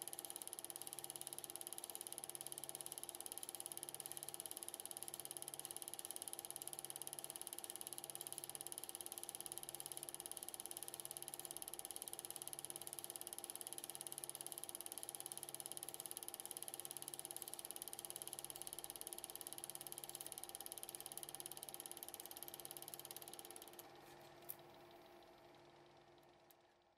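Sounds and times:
film projector ticking: 0.0s - 26.6s
click: 15.8s - 25.3s.

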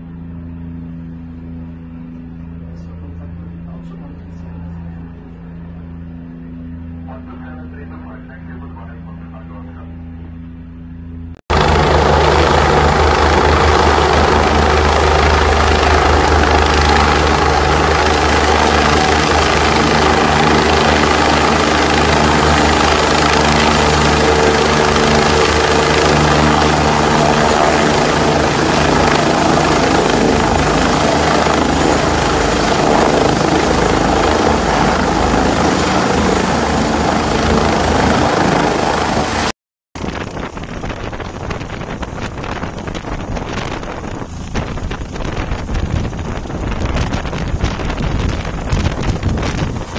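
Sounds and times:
helicopter idling: 0.0s - 49.9s
helicopter rotor and turbine: 0.0s - 49.9s
high thin turbine whine: 0.0s - 49.9s
wind on microphone: 40.0s - 49.9s.

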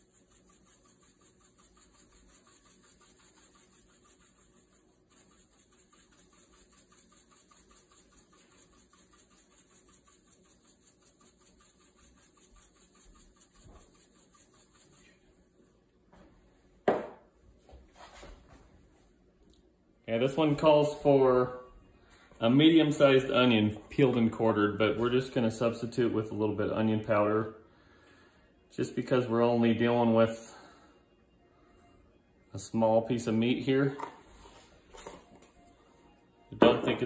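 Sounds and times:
pepper mill grinding: 0.0s - 15.1s.

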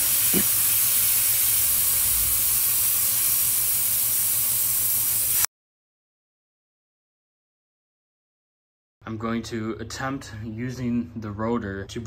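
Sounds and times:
air hissing from tyre valve: 0.0s - 5.5s.

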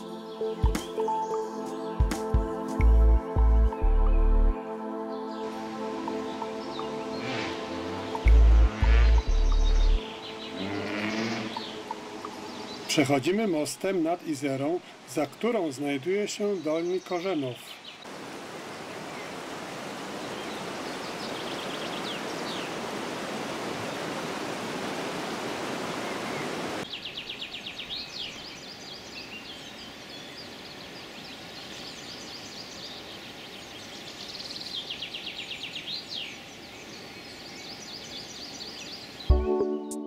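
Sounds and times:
songbirds trilling and chirping: 0.0s - 2.2s, 3.6s - 24.2s, 25.5s - 39.4s
river water rushing over stones: 18.0s - 26.9s.

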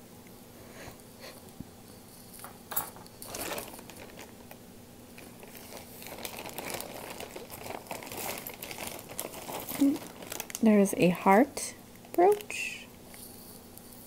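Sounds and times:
plastic bag crinkling: 3.1s - 13.4s.

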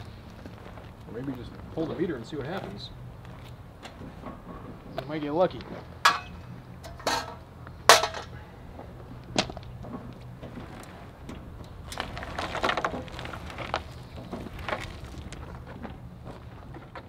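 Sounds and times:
metal scraping and rattling: 3.8s - 8.4s, 9.8s - 17.0s
sharp metallic knocks: 6.0s - 8.4s.

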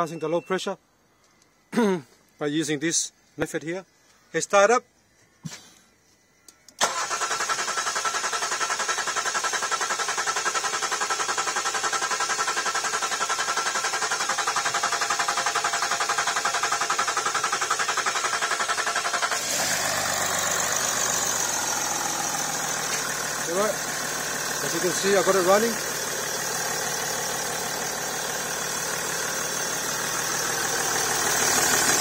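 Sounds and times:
engine cranking: 6.8s - 32.0s
engine idling: 6.8s - 32.0s.

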